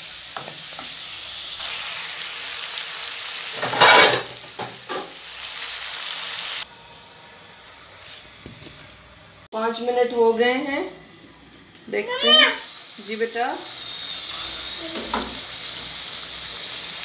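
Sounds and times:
chicken sizzling in hot oil: 0.0s - 9.5s, 10.6s - 17.0s.

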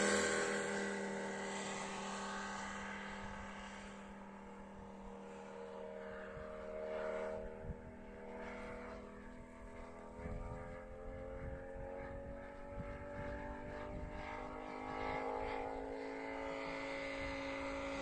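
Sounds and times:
model plane radial engine flying: 0.0s - 18.0s.

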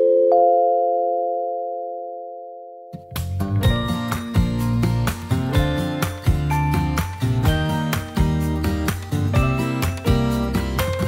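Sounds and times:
guitar music with beat: 2.9s - 11.0s.

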